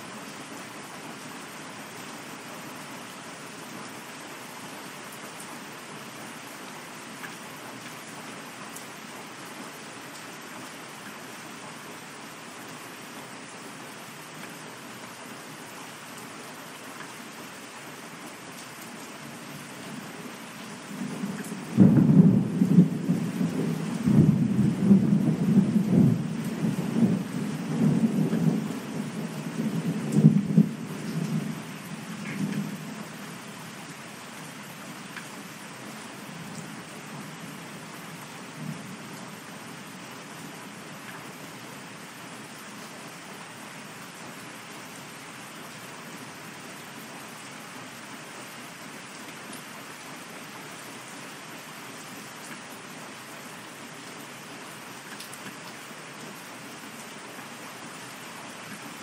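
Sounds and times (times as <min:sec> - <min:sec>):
steady rain: 0:00.0 - 0:59.0
thunder rumbling and crackling: 0:20.9 - 0:33.0.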